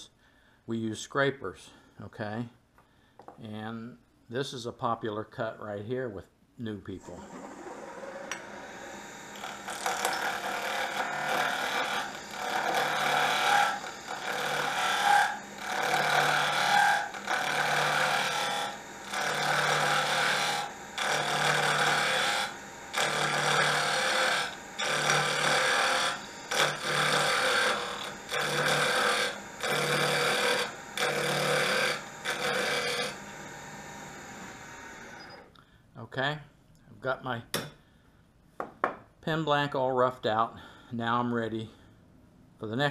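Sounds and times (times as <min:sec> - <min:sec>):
wood lathe running: 0:07.1 - 0:35.4.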